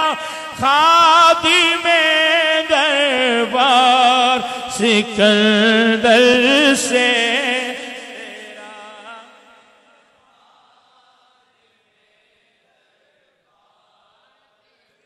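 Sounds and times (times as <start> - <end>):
man chanting into a microphone: 0.0 - 10.4.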